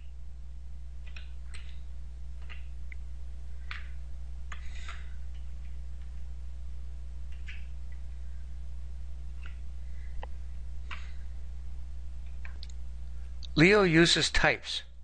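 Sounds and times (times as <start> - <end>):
steady low hum: 0.0 - 15.0
keyboard and mouse clicks: 1.0 - 1.8, 2.4 - 3.0, 3.6 - 6.2, 7.3 - 8.0, 9.4 - 9.6.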